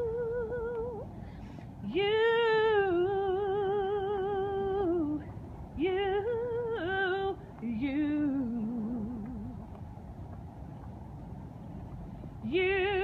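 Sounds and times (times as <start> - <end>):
woman singing without words: 0.0 - 1.2, 1.8 - 9.6, 12.4 - 13.0.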